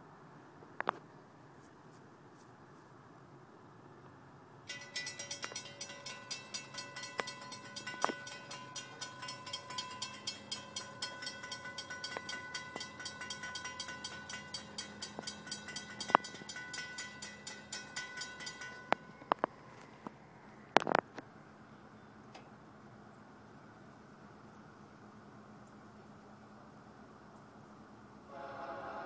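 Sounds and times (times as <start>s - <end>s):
crossing warning bell ringing: 4.7s - 20.1s.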